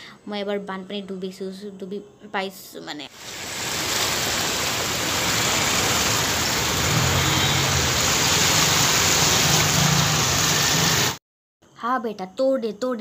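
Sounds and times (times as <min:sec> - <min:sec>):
heavy rain on flooded street: 0:03.2 - 0:11.2
motorcycle engine humming: 0:04.1 - 0:11.1.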